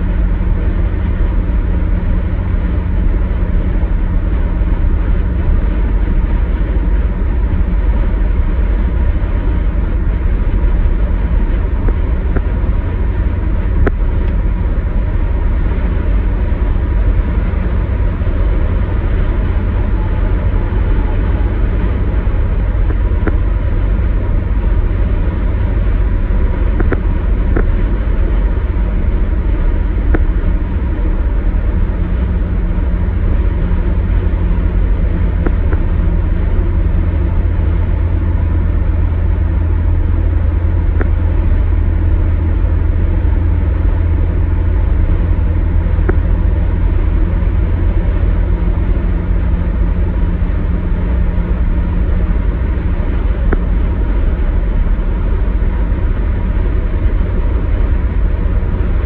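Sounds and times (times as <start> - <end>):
car road and engine rumble: 0.0 - 59.0.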